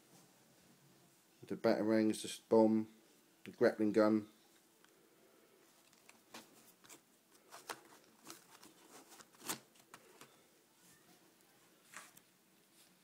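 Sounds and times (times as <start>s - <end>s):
plastic packaging rustles and clicks: 5.7s - 10.4s.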